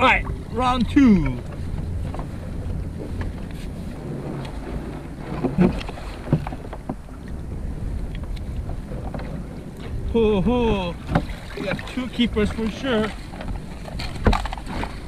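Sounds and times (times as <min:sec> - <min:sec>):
wind rumble on microphone: 0:00.0 - 0:15.0
rope hauling knocks and rustles: 0:13.0 - 0:15.0.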